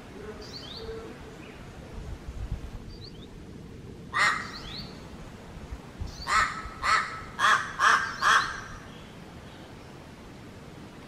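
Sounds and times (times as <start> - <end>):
crow cawing: 4.2 - 4.6, 6.3 - 8.8.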